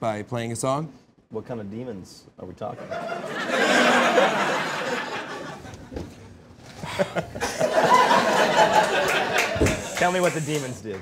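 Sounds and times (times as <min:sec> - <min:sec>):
studio audience laughing: 0:02.8 - 0:05.9, 0:06.8 - 0:10.4.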